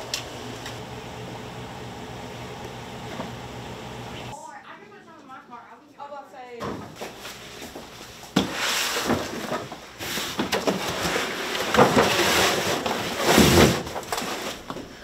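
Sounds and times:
cardboard boxes rustling and scraping: 0:06.9 - 0:15.0.

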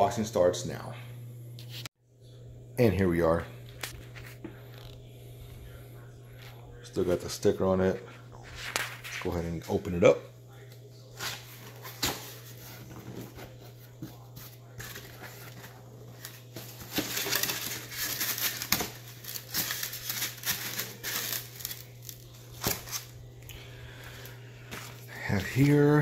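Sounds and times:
plastic wrapping crinkling: 0:14.6 - 0:25.8.

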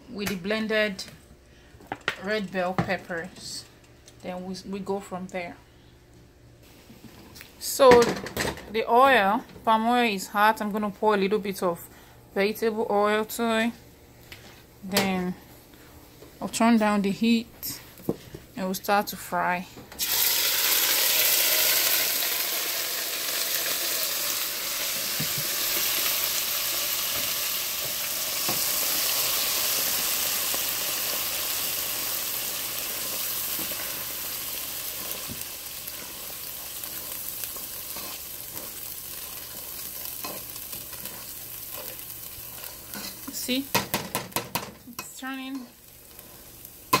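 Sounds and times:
paste sizzling in hot oil: 0:20.0 - 0:43.6.

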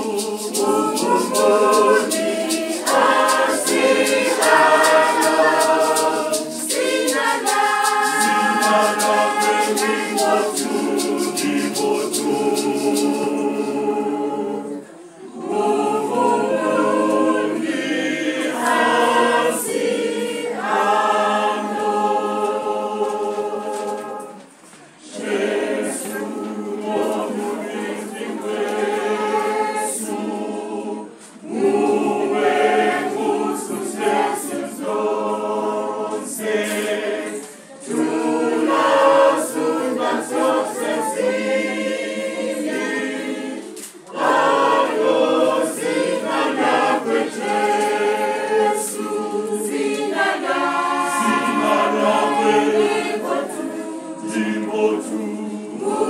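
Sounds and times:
hand rattle shaking: 0:00.0 - 0:13.8
women's choir singing: 0:00.0 - 0:56.0.

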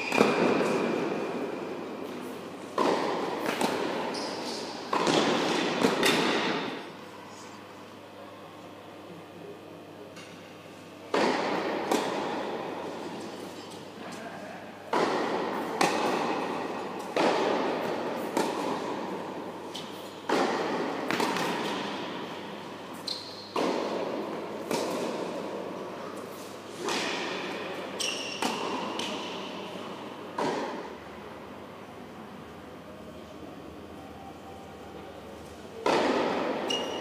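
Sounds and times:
tennis ball hits and bounces: 0:00.0 - 0:01.4, 0:02.0 - 0:06.8, 0:11.1 - 0:13.5, 0:14.9 - 0:25.6, 0:35.8 - 0:37.0.

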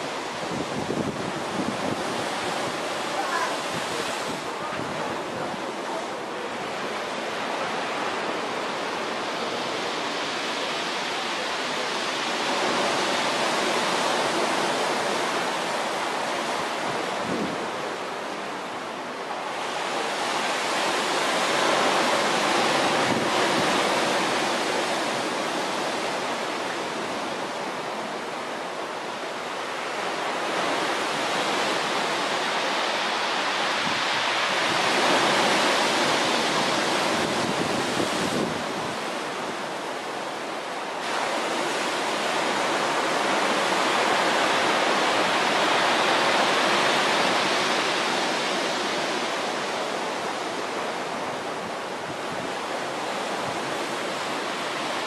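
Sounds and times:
surf breaking on beach: 0:00.0 - 0:55.0.

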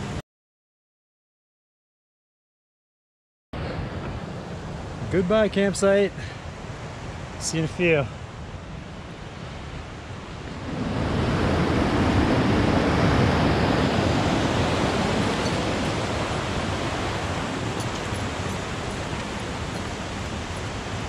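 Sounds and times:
creek rushing over rocks: 0:10.6 - 0:21.0.

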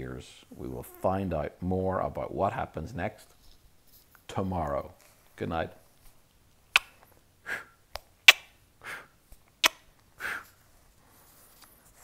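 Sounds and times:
lip smacks: 0:06.7 - 0:08.6, 0:09.4 - 0:10.4
breathy puff of air: 0:10.2 - 0:10.6.

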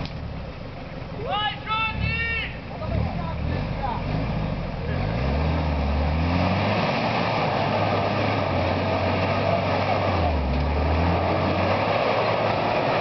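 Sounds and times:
truck engine at low speed: 0:00.0 - 0:13.0.

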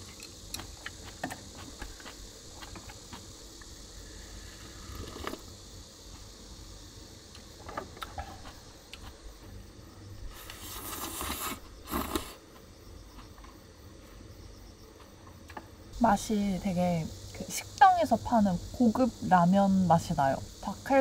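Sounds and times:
noodles slurped: 0:04.7 - 0:05.5, 0:10.5 - 0:12.4.

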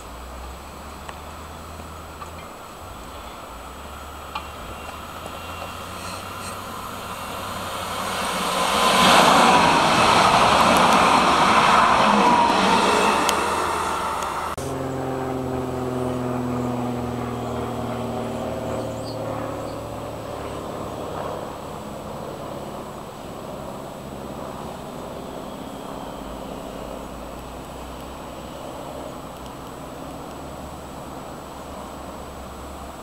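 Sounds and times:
tram wheels rumbling on rails: 0:00.0 - 0:14.6
motor whine: 0:00.0 - 0:31.8
steady multi-tone hum: 0:00.0 - 0:33.0.

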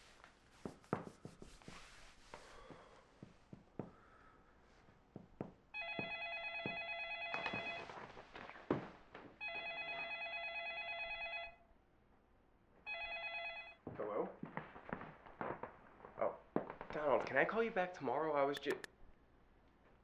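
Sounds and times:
footsteps: 0:00.0 - 0:09.5, 0:13.8 - 0:17.5
telephone ringing: 0:05.8 - 0:08.1, 0:09.4 - 0:11.7, 0:12.9 - 0:13.8.

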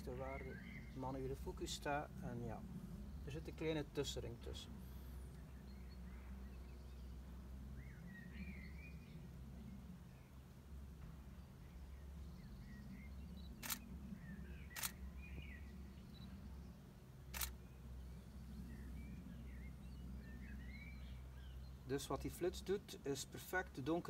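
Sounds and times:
camera shutter firing: 0:13.6 - 0:13.8, 0:14.7 - 0:15.0, 0:17.3 - 0:17.6.

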